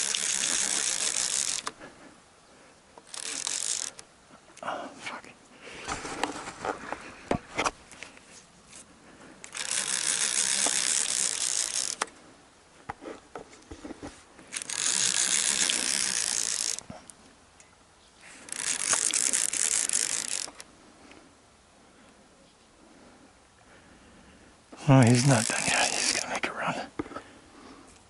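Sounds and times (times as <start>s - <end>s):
fishing reel running: 0.0s - 1.7s, 3.1s - 4.0s, 9.4s - 12.1s, 14.5s - 16.8s, 18.4s - 20.6s, 25.0s - 26.2s.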